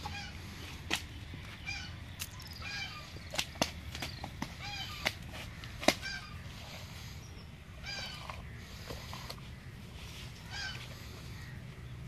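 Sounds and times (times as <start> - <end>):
fish flopping wet slaps: 3.2 - 4.2.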